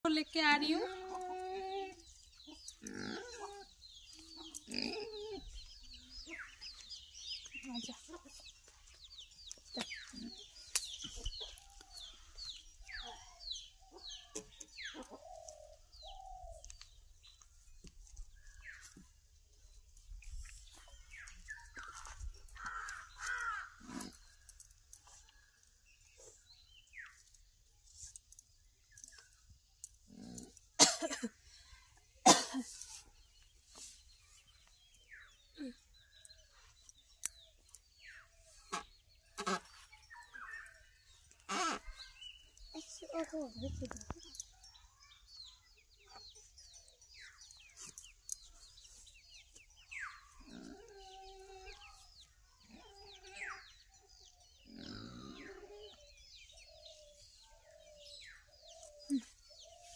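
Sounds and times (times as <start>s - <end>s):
birds calling: 0.0s - 27.5s, 28.3s - 59.9s
chickens clucking: 1.8s - 16.6s.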